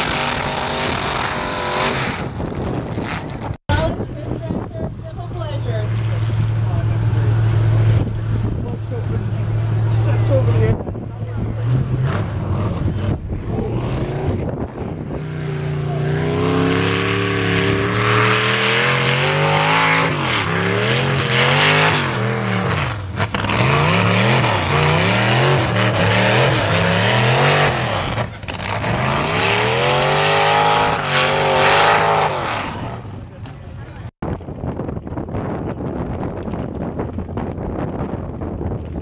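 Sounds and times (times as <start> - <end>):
lawn tractor engine at full throttle: 23.0 - 30.6.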